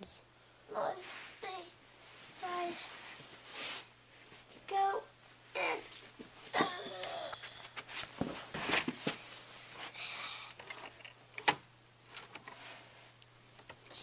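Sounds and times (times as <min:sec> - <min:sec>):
objects being handled: 0:05.6 - 0:13.8.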